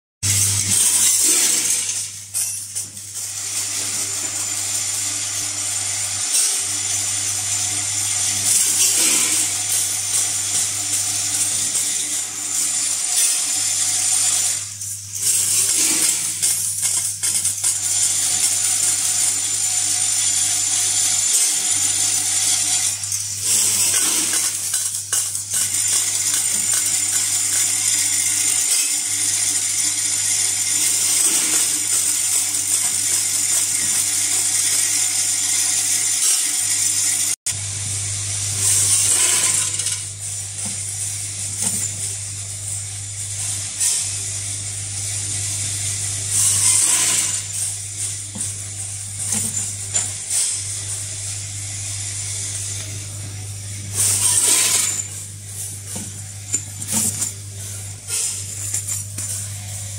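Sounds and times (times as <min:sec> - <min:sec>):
metal parts jingling and rattling: 0:00.3 - 0:04.5, 0:06.2 - 0:37.4, 0:38.6 - 0:44.3, 0:45.5 - 0:51.2, 0:52.7 - 0:59.9.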